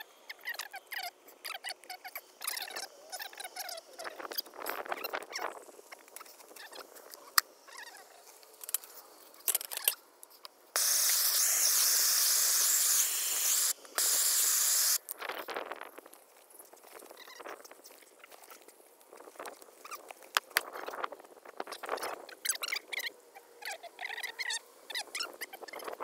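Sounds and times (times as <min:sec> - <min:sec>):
propane torch hissing: 0:10.8 - 0:15.0.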